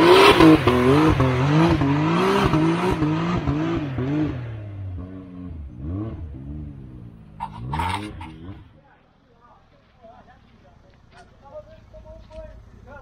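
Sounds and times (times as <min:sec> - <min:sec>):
engine revving: 0:00.0 - 0:08.8.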